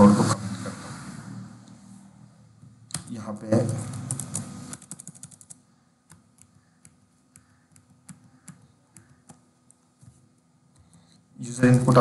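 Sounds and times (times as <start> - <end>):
keyboard typing: 2.8 - 11.2.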